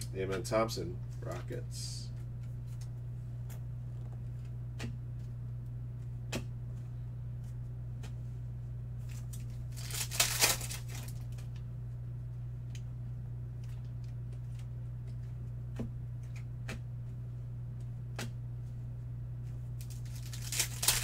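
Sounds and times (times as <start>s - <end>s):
low hum: 0.0s - 21.0s
foil wrapper tearing: 9.1s - 11.4s, 19.8s - 21.0s
cards ticking: 9.2s - 11.3s, 19.8s - 21.0s.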